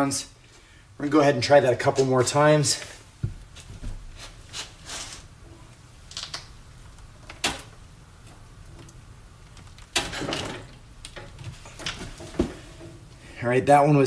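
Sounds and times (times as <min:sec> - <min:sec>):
breaker bar clicks and creaks: 0:06.1 - 0:12.9.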